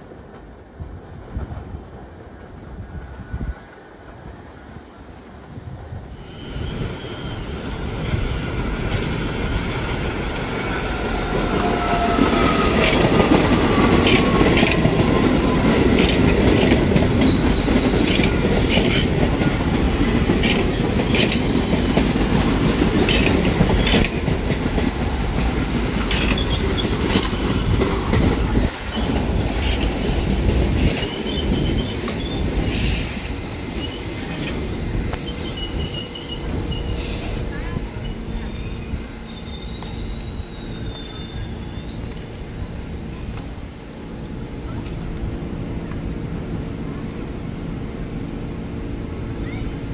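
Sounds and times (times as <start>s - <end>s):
subway train rumbling past: 0.0s - 49.9s
wheels clicking over rail joints: 8.6s - 33.4s
thin wheel squeals: 38.0s - 42.9s.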